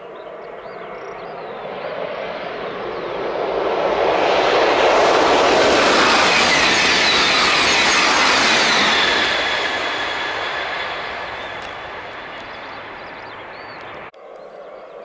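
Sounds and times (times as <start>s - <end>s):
high-speed train passing: 0.4s - 14.1s.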